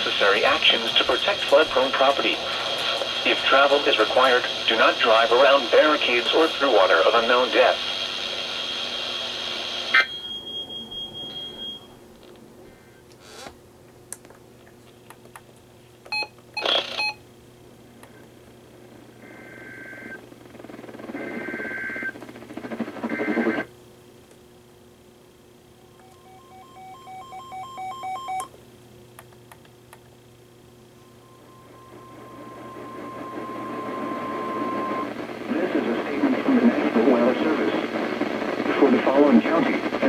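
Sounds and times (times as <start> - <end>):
radio hiss: 0.0 - 10.1, 18.1 - 23.7, 31.1 - 40.0
two-note tone from radio: 26.0 - 28.5, 31.0 - 36.4.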